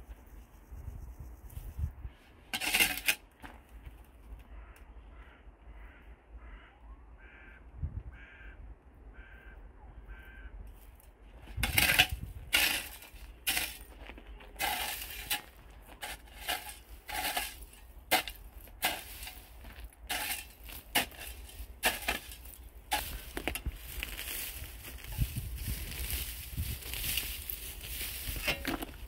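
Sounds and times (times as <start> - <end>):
shovel scraping dry grass and grit: 2.2 - 3.6, 10.8 - 29.0.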